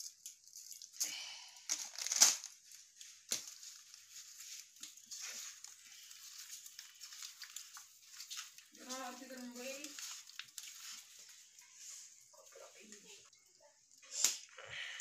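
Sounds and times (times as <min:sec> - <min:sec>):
hand rubbing wet fish: 0:02.8 - 0:12.2.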